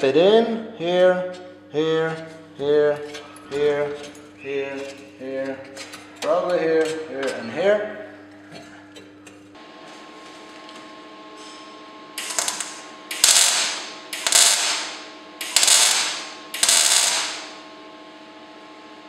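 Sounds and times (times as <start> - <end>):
welding arc crackling: 12.2 - 17.6
welder hum: 12.2 - 17.7.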